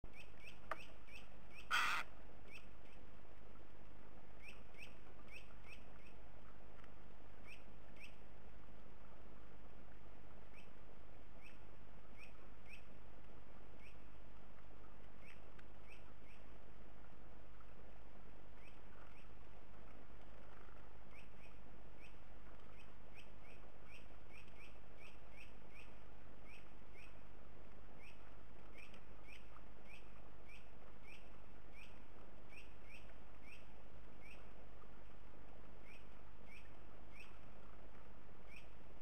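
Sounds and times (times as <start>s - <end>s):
small birds chirping: 0.1s - 3.2s, 4.4s - 6.6s, 7.3s - 8.3s, 10.4s - 10.8s, 13.6s - 14.2s, 14.8s - 16.6s, 18.5s - 19.4s, 20.4s - 38.9s.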